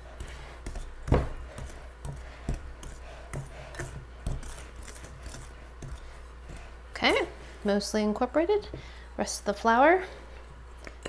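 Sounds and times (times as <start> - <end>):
whisk scraping dough in bowl: 0.0 - 7.6.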